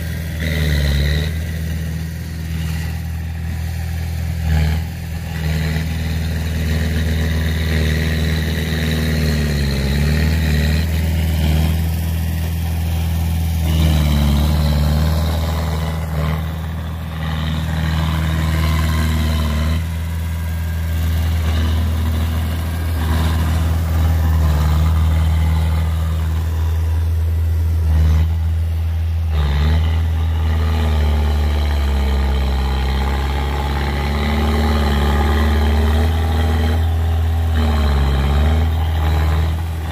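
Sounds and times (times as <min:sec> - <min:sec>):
bulldozer diesel engine running: 0:00.0 - 0:39.9.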